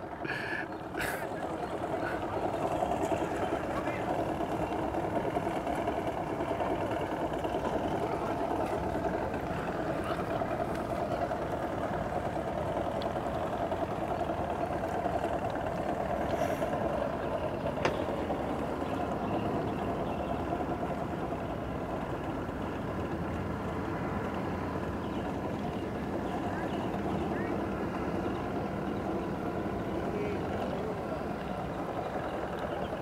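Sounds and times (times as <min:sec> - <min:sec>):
outboard motor humming: 0:00.0 - 0:33.0.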